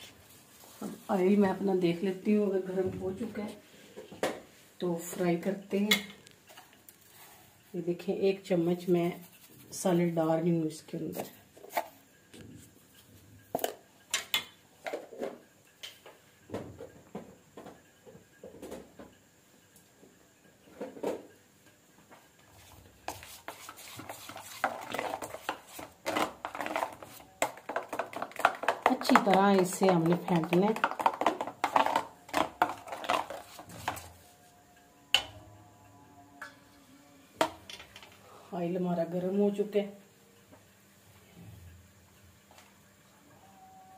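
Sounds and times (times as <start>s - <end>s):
batter beaten in a steel bowl: 22.6s - 34.3s
steel bowl knocking: 24.6s - 34.0s.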